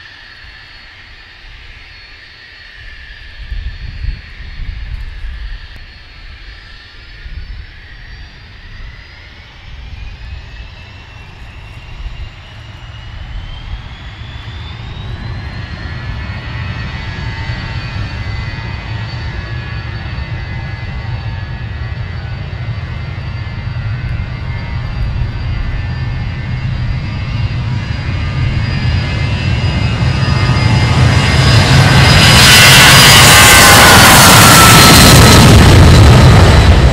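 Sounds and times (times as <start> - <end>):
jet engines spooling up: 0.0 - 36.9
rising engine whine: 0.0 - 36.9.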